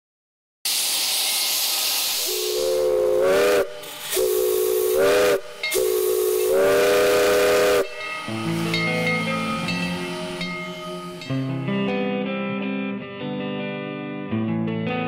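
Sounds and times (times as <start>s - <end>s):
steam hissing: 0.7s - 11.5s
steam locomotive whistle: 1.1s - 11.6s.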